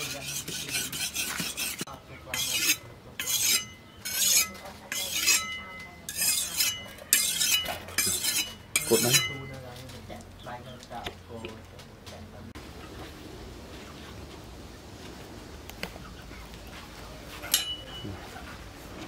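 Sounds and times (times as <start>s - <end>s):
blade scraping on sharpening stone: 0.0s - 9.6s, 17.5s - 18.0s.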